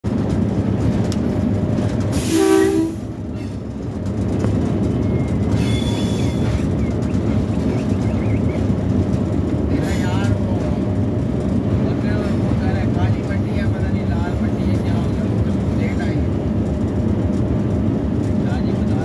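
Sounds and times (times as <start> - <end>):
locomotive rumbling along track: 0.0 - 19.0
short train horn blast: 2.1 - 3.1.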